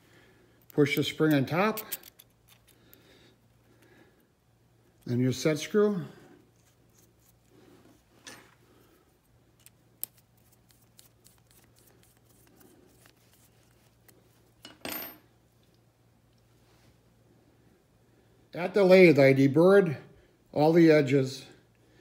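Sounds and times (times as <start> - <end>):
small metallic clicks: 0.6 - 3.0.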